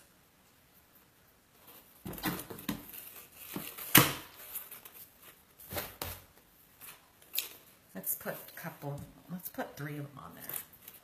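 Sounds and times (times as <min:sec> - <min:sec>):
rustling of craft supplies: 0:00.0 - 0:11.0.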